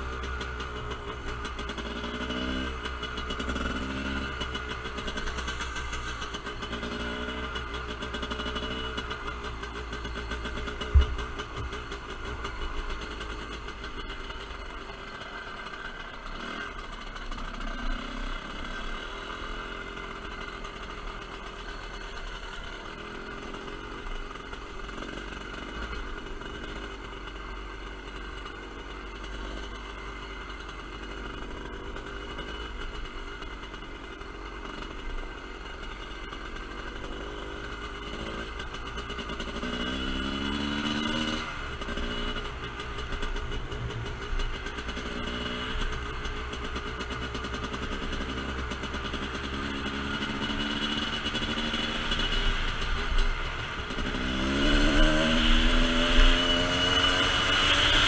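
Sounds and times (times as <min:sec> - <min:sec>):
dirt bike engine running: 0:00.0 - 0:58.0.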